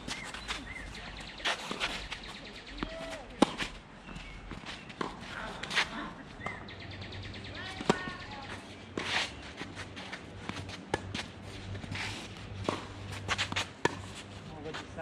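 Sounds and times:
shoe scuffs on a hard court: 0.0 - 6.0, 7.8 - 15.0
bird chirping: 6.3 - 8.5.

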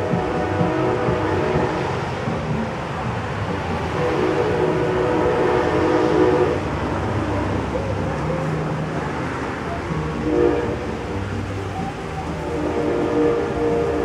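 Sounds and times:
train horn: 0.0 - 2.2, 3.9 - 7.3, 10.1 - 14.0
passing train rumble: 0.0 - 14.0.

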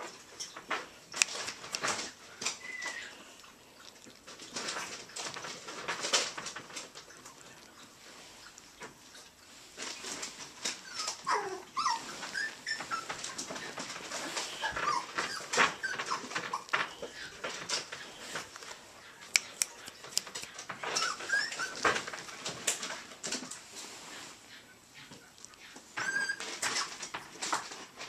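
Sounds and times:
rustling: 0.0 - 28.0
puppy whimpering and squeaking: 2.6 - 3.3, 10.6 - 18.1, 19.1 - 22.2, 24.6 - 27.0
sharp clicks: 19.3 - 20.6.

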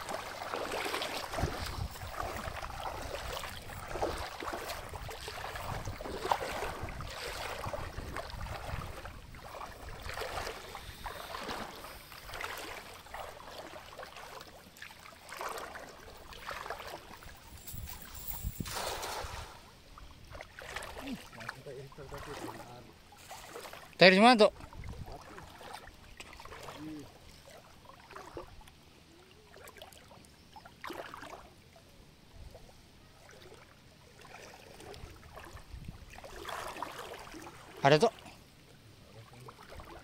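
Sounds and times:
cast net splashing: 0.0 - 24.0, 34.2 - 38.2
water sloshing around legs: 0.0 - 40.0.

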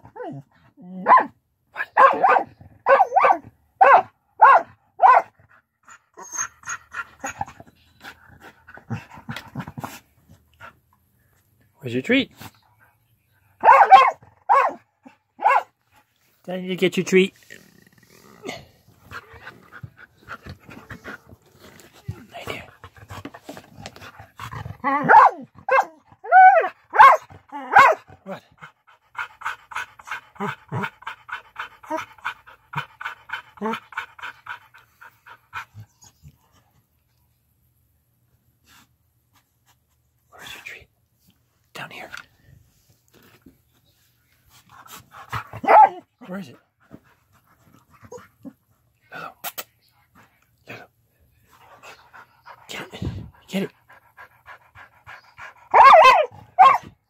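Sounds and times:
dog yowling barks: 1.0 - 5.3, 13.6 - 14.8, 15.4 - 15.7, 24.8 - 28.1, 45.6 - 46.1, 55.7 - 56.9
dog panting: 6.8 - 10.9, 18.9 - 24.8, 28.4 - 36.9, 51.4 - 55.8.

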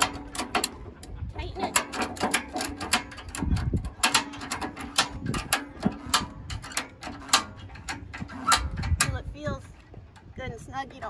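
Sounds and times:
ratchet strap clicking: 0.0 - 9.3.

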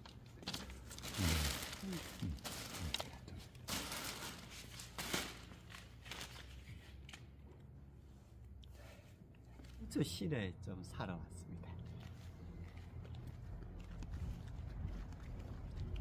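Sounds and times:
plastic bags crinkling: 0.0 - 6.7.

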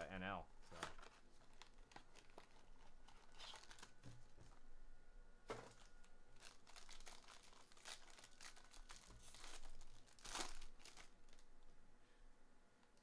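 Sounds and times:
foil wrapper crinkling and tearing: 0.7 - 4.6, 5.6 - 11.5.

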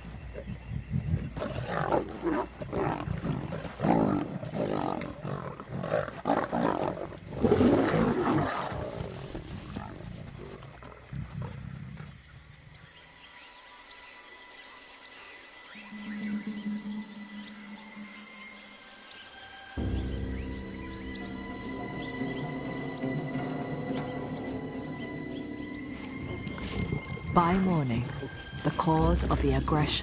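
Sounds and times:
lions growling and snarling: 0.3 - 12.4.

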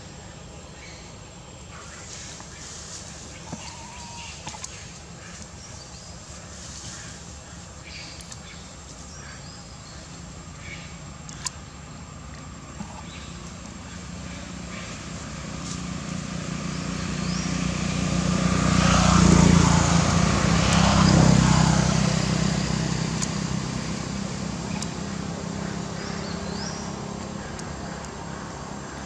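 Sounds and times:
motor vehicle passing by: 12.5 - 29.0.

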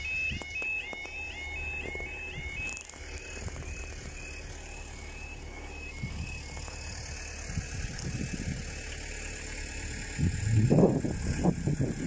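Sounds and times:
low outdoor rumble: 0.0 - 12.0
wind gusts on microphone: 6.0 - 8.7, 10.2 - 12.0.

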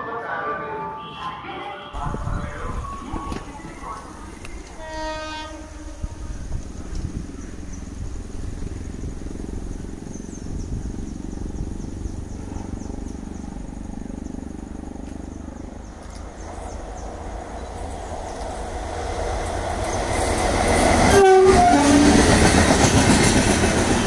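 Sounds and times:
train rumbling: 0.0 - 24.0
train horn blast: 4.6 - 6.5, 21.0 - 22.4.

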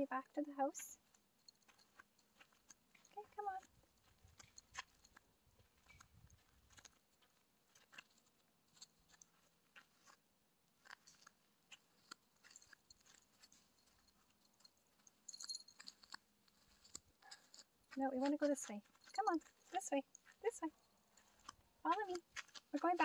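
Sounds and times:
footsteps on dry dirt path: 1.0 - 10.2, 15.3 - 23.0.

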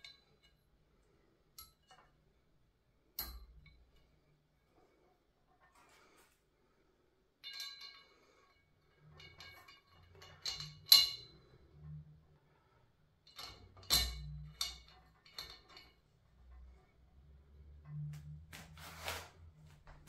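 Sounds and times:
metal tubes knocking and clinking: 0.0 - 0.6, 3.2 - 4.1, 7.4 - 12.3, 13.2 - 18.5
hollow tube ringing: 7.4 - 12.3, 13.2 - 18.8.

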